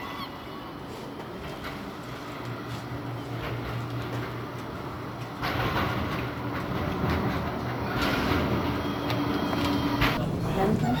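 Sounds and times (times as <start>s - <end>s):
tram wheels on rails: 0.0s - 11.0s
tram whine: 0.0s - 11.0s.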